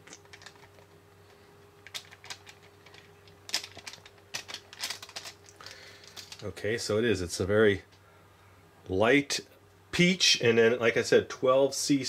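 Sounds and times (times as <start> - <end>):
paper packet crinkling: 0.0 - 0.9, 1.8 - 6.5.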